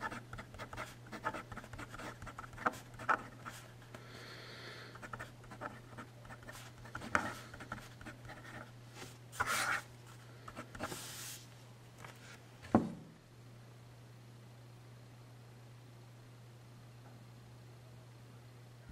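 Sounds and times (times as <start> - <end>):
fountain pen scratching on paper: 0.0 - 3.7, 5.0 - 8.7, 9.4 - 9.9
steady low hum: 0.0 - 18.9.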